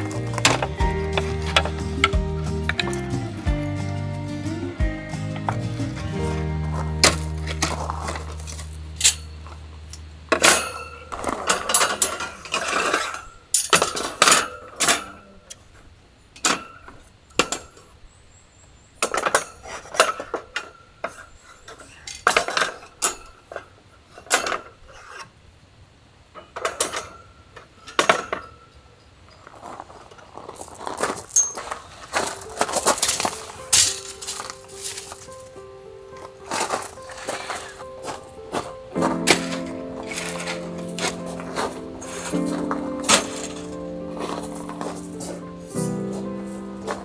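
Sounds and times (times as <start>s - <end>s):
metal rack clanking: 0.0s - 3.9s, 6.2s - 9.5s, 10.3s - 15.4s, 26.4s - 29.2s, 31.4s - 35.7s, 38.9s - 47.0s.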